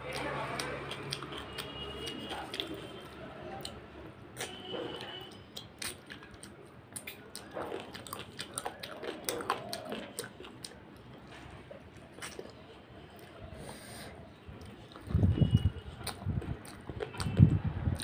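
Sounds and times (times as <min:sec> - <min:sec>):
person chewing food: 0:00.0 - 0:18.0
wet mouth clicks and smacks: 0:00.1 - 0:02.9, 0:05.3 - 0:10.8, 0:14.6 - 0:18.0.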